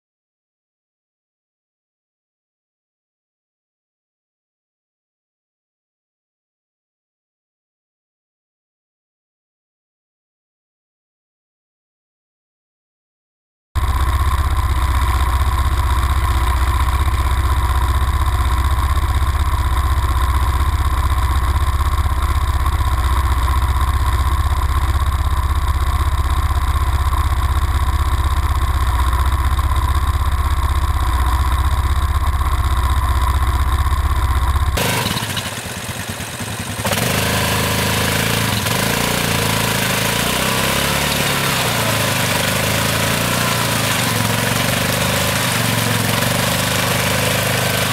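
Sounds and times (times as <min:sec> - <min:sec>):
atv engines rumbling: 0:13.8 - 0:47.9
engine running unevenly: 0:13.8 - 0:47.9
wheels spinning in mud: 0:13.8 - 0:47.9.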